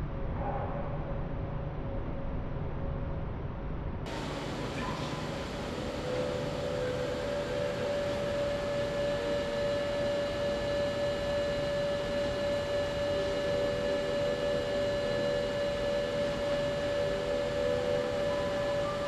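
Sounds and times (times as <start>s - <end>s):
constant hiss: 4.1s - 9.2s
fainter held tones: 4.1s - 19.0s
steady droning tone: 4.1s - 19.0s.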